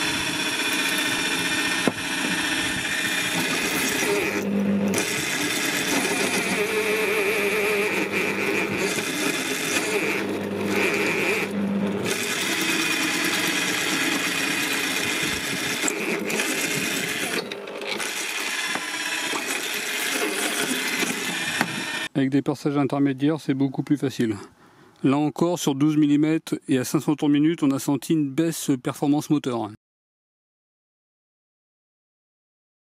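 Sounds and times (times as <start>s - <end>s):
pillar drill cutting steel: 0.0s - 22.1s.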